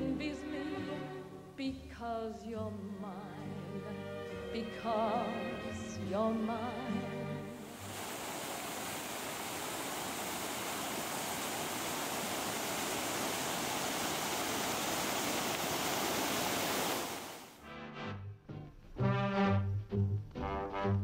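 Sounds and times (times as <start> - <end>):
fountain water splashing: 7.6 - 17.6
brass music: 17.6 - 21.0.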